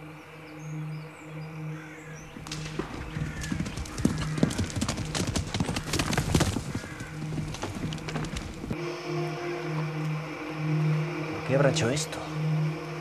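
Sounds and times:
horse hooves clopping: 2.3 - 8.8.

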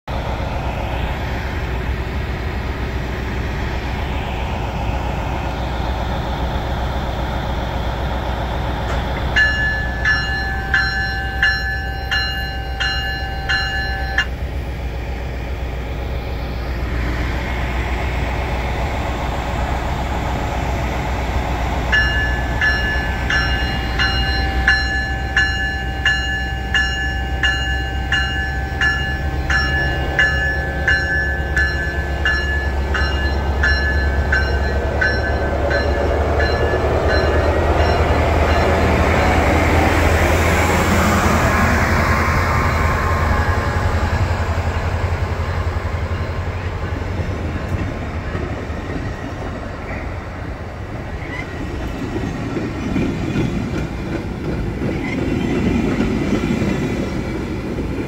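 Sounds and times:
diesel locomotive rumbling: 0.0 - 58.0
locomotive bell ringing: 8.9 - 14.6, 21.8 - 44.8.

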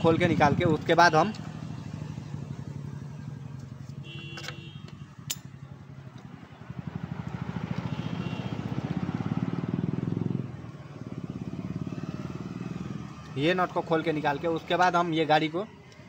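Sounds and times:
motorcycle engine running: 0.0 - 13.3
sharp click: 5.3 - 5.5.

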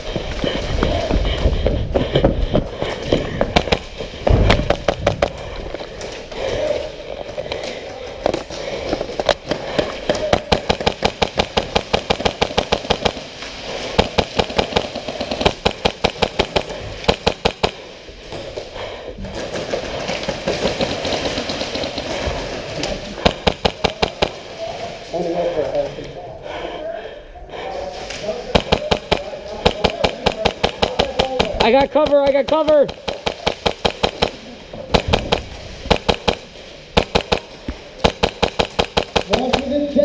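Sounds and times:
airsoft rifles firing: 3.5 - 5.4, 8.3 - 18.0, 23.2 - 24.6, 28.5 - 40.0.

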